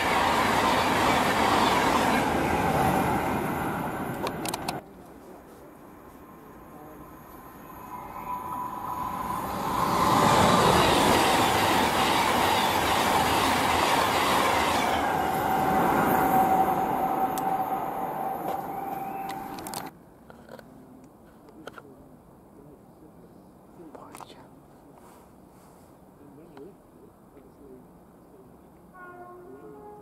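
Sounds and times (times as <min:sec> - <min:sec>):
train passing at speed: 0:00.0 - 0:04.9, 0:05.7 - 0:19.9.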